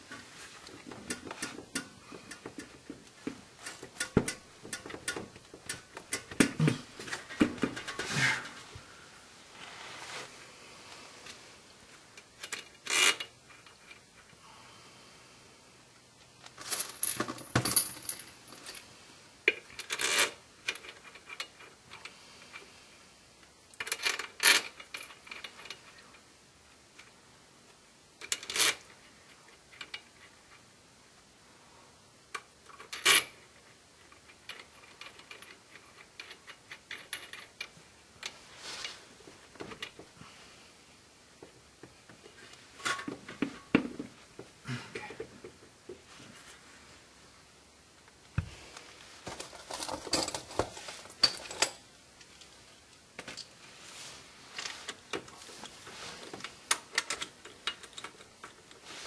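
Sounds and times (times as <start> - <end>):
metal bolts clinking and rattling: 0.7 - 8.5, 16.4 - 18.9, 32.6 - 38.4, 42.2 - 44.2, 49.2 - 52.5, 54.5 - 59.0.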